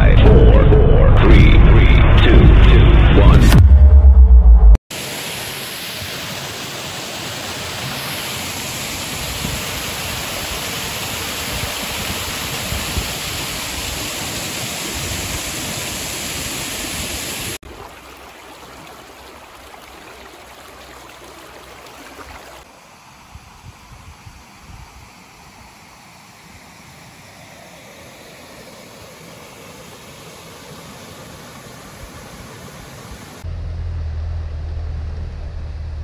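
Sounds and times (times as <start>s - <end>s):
water rushing down spillway: 4.9s - 22.7s
softer water flow: 4.9s - 23.0s.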